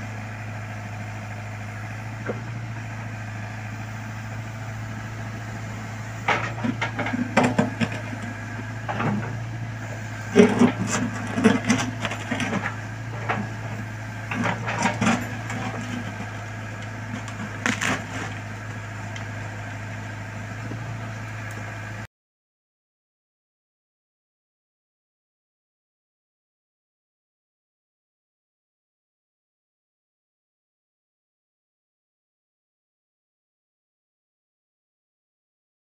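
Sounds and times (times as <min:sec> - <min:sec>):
backhoe engine running: 0:00.0 - 0:22.1
roots cracking and crunching: 0:14.4 - 0:19.3.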